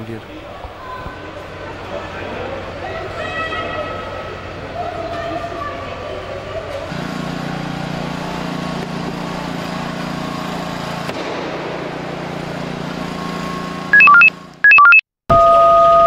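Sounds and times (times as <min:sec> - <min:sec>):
hydraulic power unit motor running: 0:00.4 - 0:14.7
rapid electronic beeps: 0:13.9 - 0:16.0.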